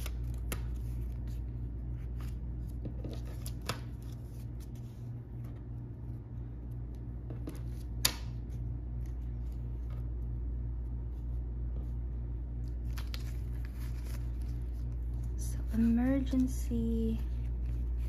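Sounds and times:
steady low hum: 0:00.0 - 0:18.0
banknotes rustling on table: 0:12.6 - 0:18.0.

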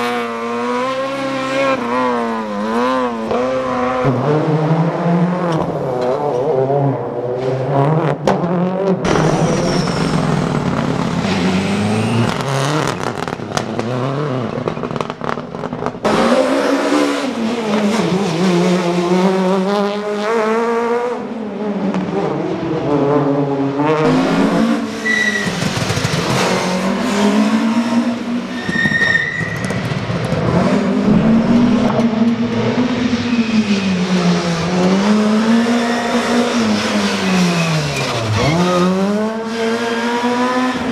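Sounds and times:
car engines revving: 0:00.0 - 0:40.9
tyre squeals: 0:09.4 - 0:10.5, 0:25.0 - 0:25.7, 0:28.5 - 0:30.0.

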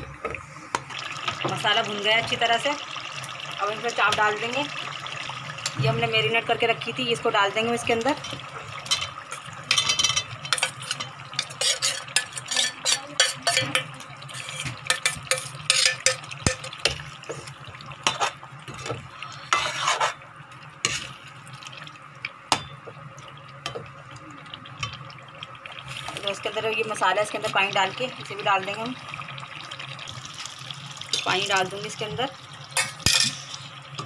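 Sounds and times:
steel spoon scraping a bowl: 0:09.8 - 0:16.2, 0:19.5 - 0:20.2.

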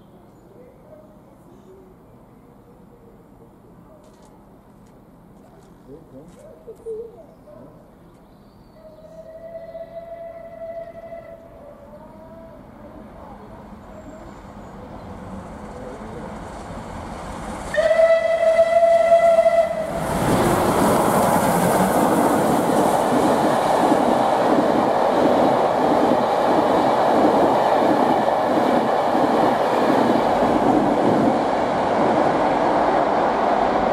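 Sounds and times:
steam locomotive whistle: 0:09.2 - 0:11.4, 0:17.7 - 0:20.0
train rushing past: 0:13.0 - 0:33.9.

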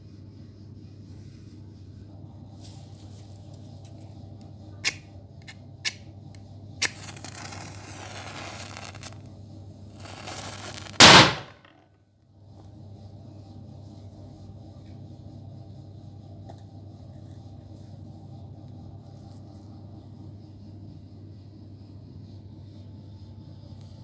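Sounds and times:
lighter hissing: 0:06.8 - 0:09.3, 0:09.9 - 0:11.5
tiny cannon bang: 0:11.0 - 0:11.7.

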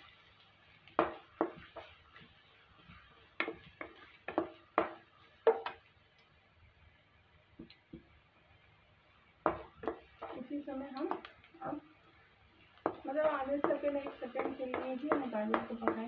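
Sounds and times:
carrots frying in oil: 0:00.0 - 0:16.0
wooden spatula tapping metal pan: 0:00.9 - 0:02.3, 0:02.9 - 0:05.9, 0:09.4 - 0:11.4, 0:12.8 - 0:16.0.

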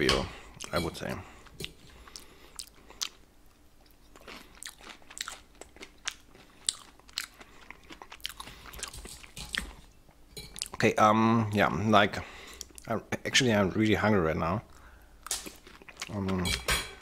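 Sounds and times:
person chewing and crunching food: 0:00.5 - 0:10.8, 0:12.5 - 0:12.9, 0:14.8 - 0:16.5.

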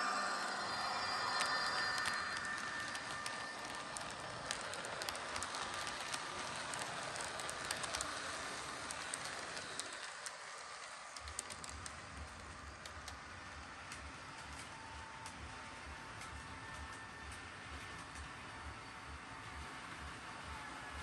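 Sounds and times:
model train wheels rumbling on rail: 0:00.0 - 0:21.0
small irregular clicks: 0:00.6 - 0:15.5.

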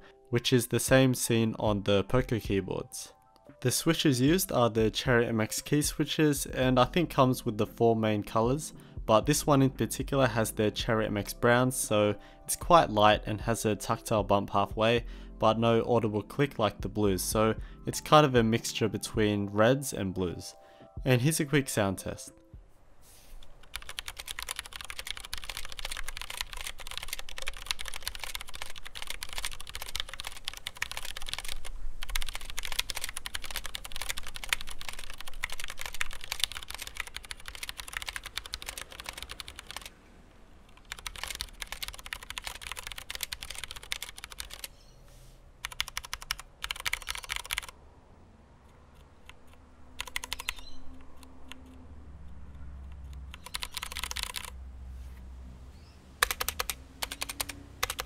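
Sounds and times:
mechanical keyboard typing: 0:23.4 - 0:39.9, 0:40.7 - 0:44.7, 0:45.6 - 0:47.8, 0:48.9 - 0:51.8, 0:52.8 - 0:54.6, 0:56.2 - 0:58.0.

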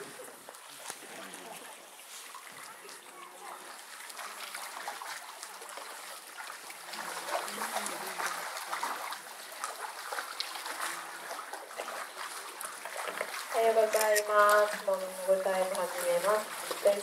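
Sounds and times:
faint voices: 0:00.0 - 0:04.6
running and trickling water: 0:00.0 - 0:17.0.

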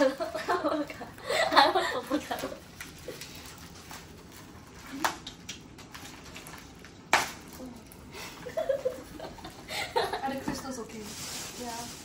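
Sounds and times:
packaging rustling and crinkling: 0:02.1 - 0:08.1, 0:10.3 - 0:12.0
sharp packaging cracks: 0:02.8 - 0:07.8.

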